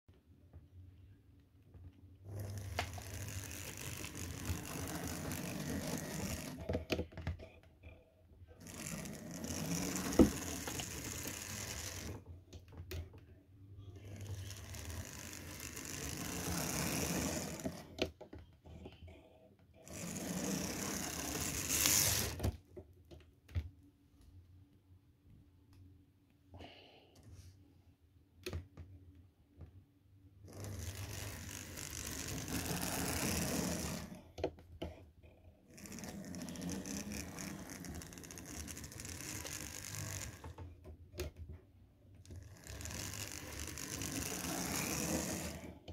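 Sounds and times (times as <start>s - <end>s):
small electric motor running: 2.3s - 7.0s, 8.6s - 12.3s, 13.9s - 17.9s, 19.8s - 22.5s, 30.5s - 34.2s, 35.7s - 40.6s, 42.3s - 45.8s
motor sparking and sputtering: 2.4s - 6.6s, 8.6s - 12.2s, 14.2s - 17.8s, 19.9s - 22.4s, 30.6s - 34.1s, 35.8s - 40.6s, 42.4s - 45.6s.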